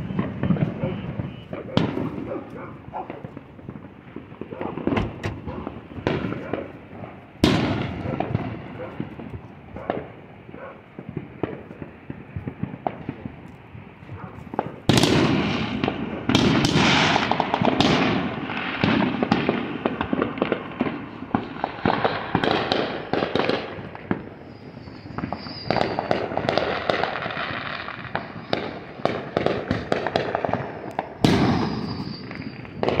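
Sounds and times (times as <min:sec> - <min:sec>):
faint high firework whistle: 0:00.0 - 0:02.7, 0:24.0 - 0:33.0
fireworks crackling and popping: 0:00.0 - 0:33.0
heavy firework bangs: 0:00.0 - 0:33.0.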